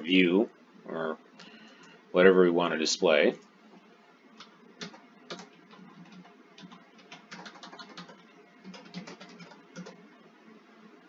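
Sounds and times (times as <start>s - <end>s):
keyboard typing: 4.4s - 10.0s.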